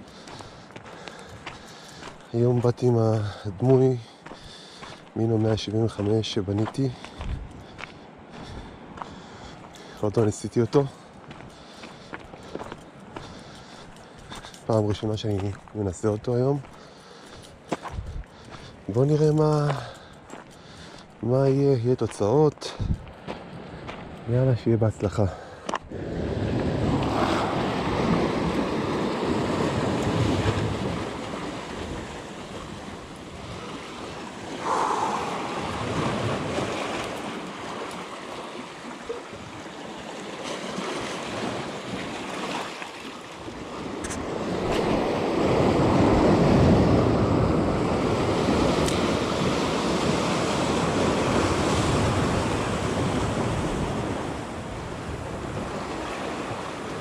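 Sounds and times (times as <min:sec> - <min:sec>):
waves on rocky shore: 0:00.0 - 0:57.0
wind buffeting microphone: 0:06.0 - 0:09.6, 0:17.8 - 0:19.0, 0:22.7 - 0:24.3, 0:25.9 - 0:37.6.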